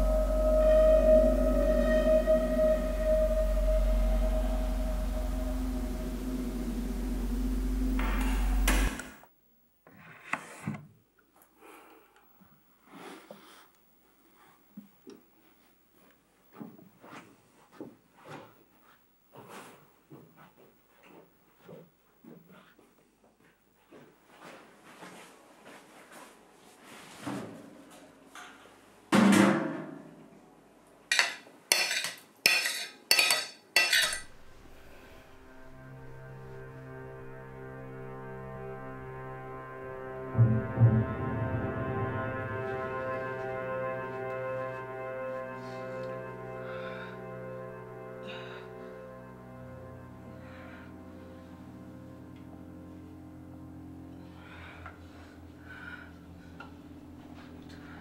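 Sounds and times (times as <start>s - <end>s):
deep humming drone: 0.0s - 9.2s, 34.2s - 58.0s
rising hiss: 2.4s - 9.2s.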